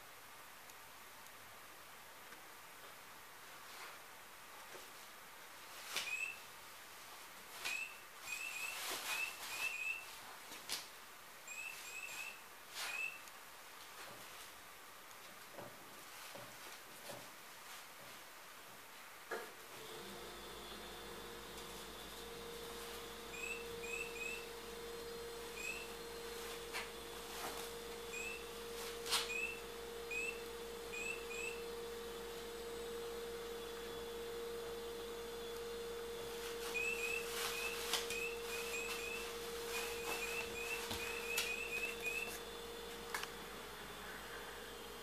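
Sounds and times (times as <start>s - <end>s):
steady hum: 19.8s - 45.0s
electronic toy chirping: 23.3s - 24.4s, 25.6s - 25.9s, 28.1s - 28.4s, 29.3s - 31.6s, 36.8s - 42.4s.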